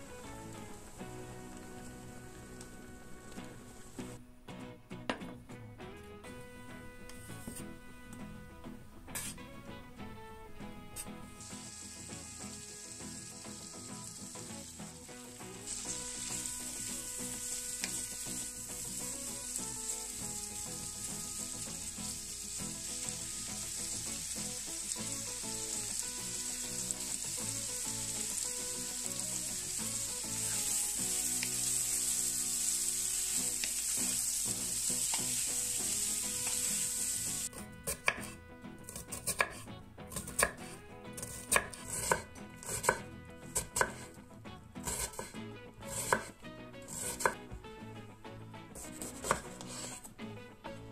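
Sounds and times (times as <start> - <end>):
potatoes sizzling in a pan: 0.0 - 4.2, 11.4 - 38.3, 38.9 - 44.1, 44.8 - 46.3, 46.9 - 47.4, 48.8 - 50.0
knife chopping on wooden board: 37.9 - 43.0, 43.6 - 44.1, 44.8 - 46.3, 48.8 - 50.0.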